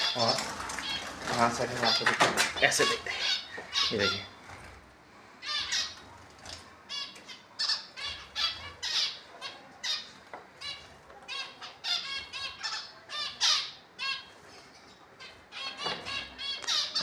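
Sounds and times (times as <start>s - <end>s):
finches calling: 0.0s - 4.5s.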